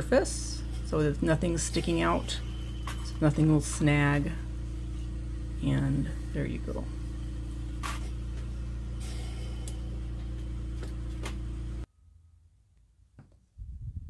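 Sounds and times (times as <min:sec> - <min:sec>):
low hum: 0:00.0 - 0:12.9.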